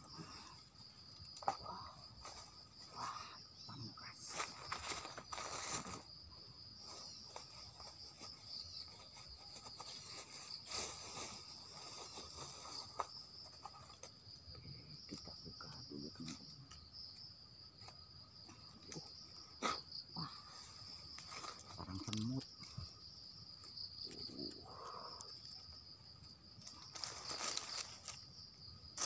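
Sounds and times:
insects droning: 0.0s - 29.0s
dry leaves and sticks rustling: 4.1s - 6.1s, 6.8s - 14.3s, 20.5s - 24.6s, 25.2s - 29.0s.

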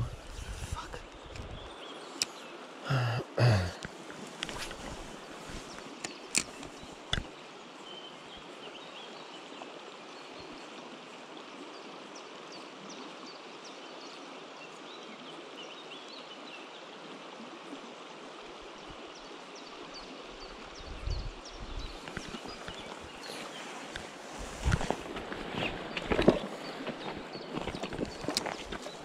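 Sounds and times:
river water over rocks: 0.1s - 29.0s.

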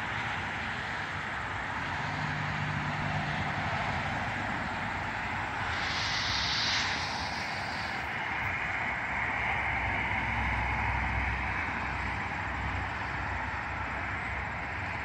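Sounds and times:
highway traffic rushing: 0.0s - 15.0s
low rumble: 3.0s - 10.3s.

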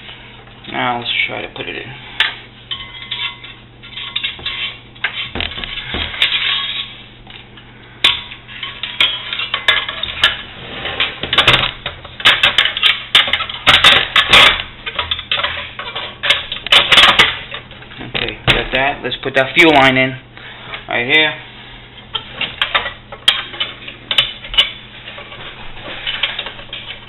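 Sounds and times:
metal parts clinking and scraping: 2.7s - 7.0s, 22.1s - 27.0s.

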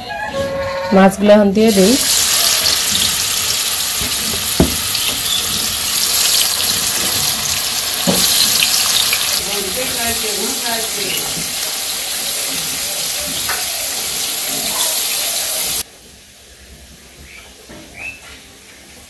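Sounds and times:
fish frying in hot oil: 1.7s - 15.9s
thuds: 4.0s - 5.9s.

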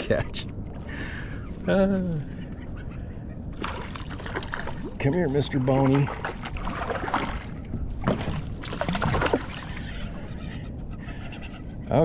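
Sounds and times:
steady water noise: 0.0s - 11.8s
fish thrashing and splashing: 3.6s - 10.1s.

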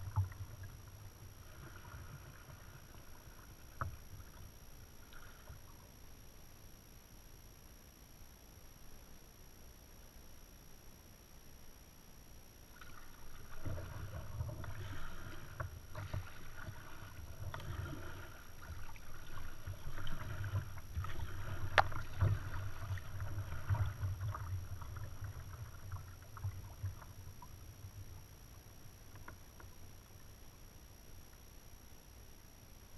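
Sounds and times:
paddle strokes in water: 0.0s - 6.0s, 12.7s - 30.3s
water splashing against hull: 0.0s - 6.0s, 12.7s - 30.1s.

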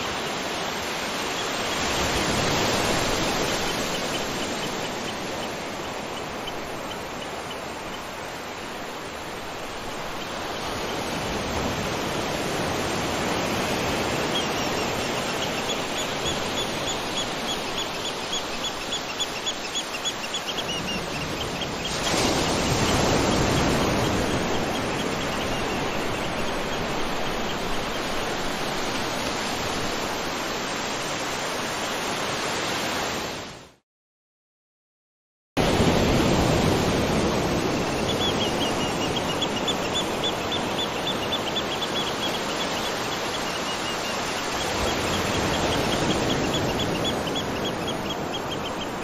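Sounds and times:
falling water and rain: 0.0s - 33.5s.

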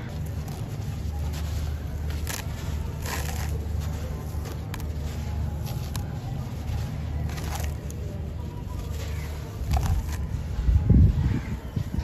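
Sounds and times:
steady low rumble: 0.0s - 12.0s
sand-cement chunk crumbling: 0.1s - 8.1s.

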